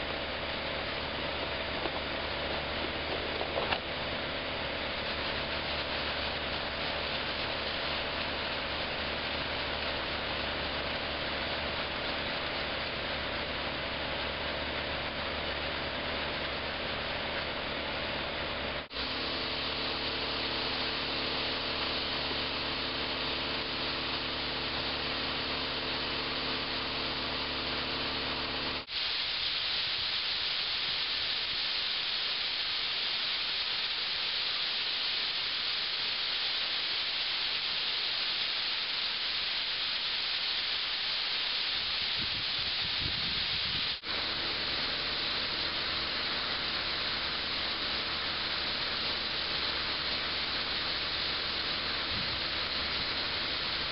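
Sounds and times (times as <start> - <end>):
engine hum: 0.0 - 28.9, 41.5 - 53.9
sand pouring into hopper: 0.0 - 53.9.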